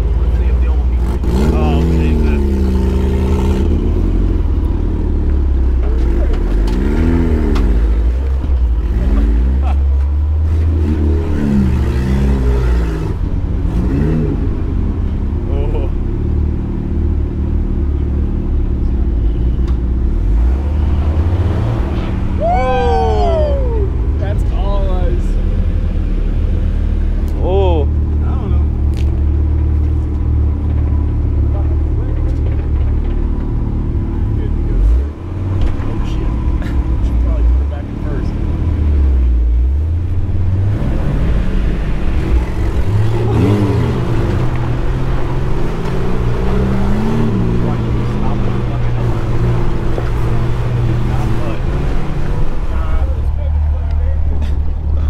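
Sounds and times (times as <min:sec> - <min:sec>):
vehicle engine rumbling: 0:00.0 - 0:55.0
short voice call: 0:22.4 - 0:24.0.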